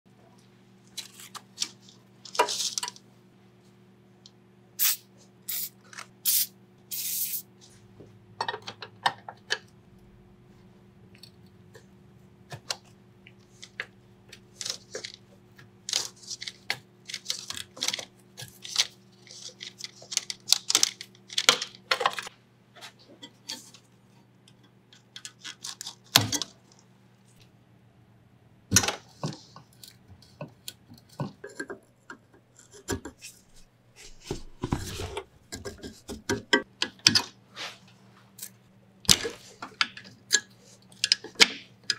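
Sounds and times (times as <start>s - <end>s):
steady low hum: 6.5s - 21.3s.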